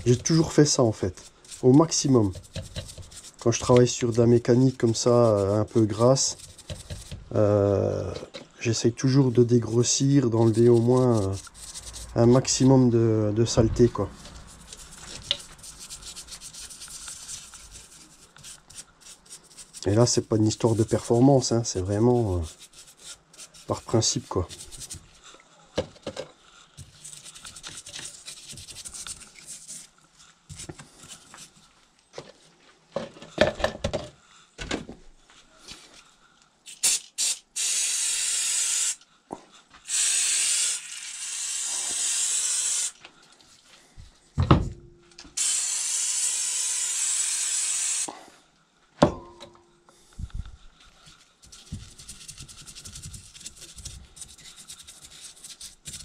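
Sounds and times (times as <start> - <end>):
brush scrubbing casing: 0.0 - 7.4, 9.2 - 25.2, 26.8 - 29.9, 51.4 - 56.0
aerosol spray can hissing: 36.7 - 39.0, 39.8 - 43.0, 45.4 - 48.1.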